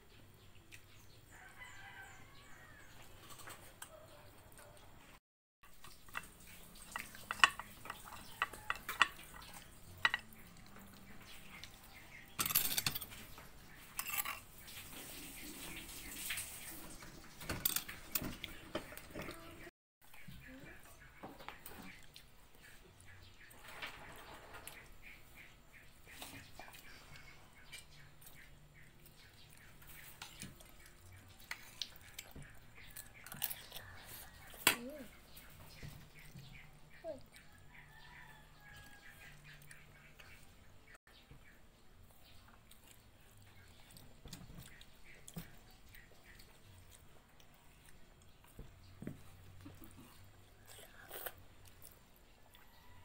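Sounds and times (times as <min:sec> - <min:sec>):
quiet chewing and lip-smacking: 0:00.2 - 0:01.6, 0:18.4 - 0:23.3, 0:24.7 - 0:40.7, 0:41.4 - 0:53.0
dishware and utensils clinking: 0:05.9 - 0:10.4, 0:12.3 - 0:13.3, 0:13.9 - 0:14.7, 0:17.4 - 0:19.4.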